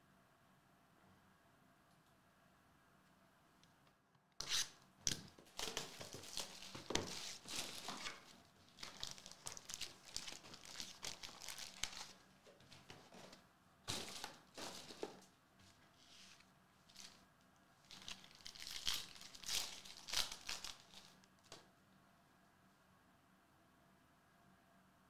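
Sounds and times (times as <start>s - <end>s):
plastic wrapping tearing and crinkling: 5.5s - 12.2s, 13.9s - 15.0s, 17.9s - 21.3s.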